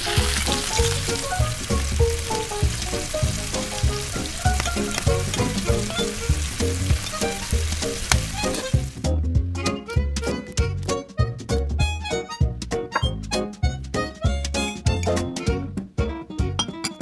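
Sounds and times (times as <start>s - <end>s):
potato slices sizzling in oil: 0.0s - 9.1s.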